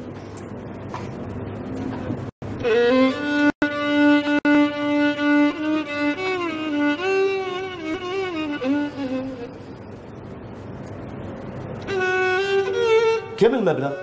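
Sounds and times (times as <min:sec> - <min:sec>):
solo bowed string melody: 0:02.5 - 0:09.7, 0:11.8 - 0:13.4.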